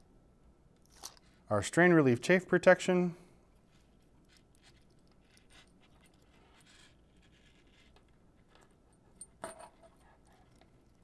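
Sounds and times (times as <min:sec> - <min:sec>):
handling small metal parts: 0:03.5 - 0:11.0.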